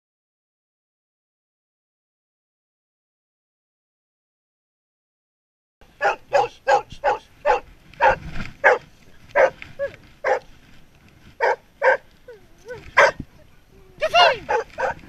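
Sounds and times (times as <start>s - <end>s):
dog barking: 6.0s - 10.5s, 11.4s - 12.1s, 12.7s - 13.2s, 14.0s - 15.0s
dog whining: 11.8s - 13.2s.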